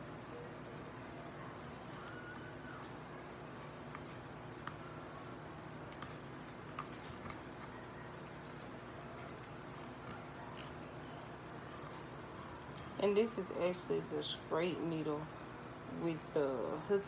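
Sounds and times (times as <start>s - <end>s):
steady low hum: 0.0s - 17.0s
faint clicks and taps: 1.1s - 13.0s.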